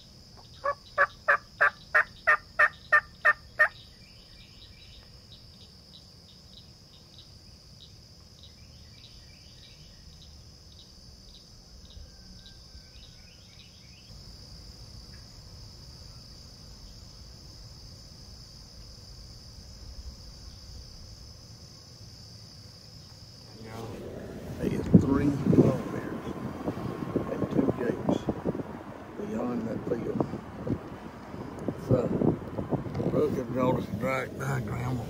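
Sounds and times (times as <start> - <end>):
quickly repeated insect chirps: 0.0 - 23.8.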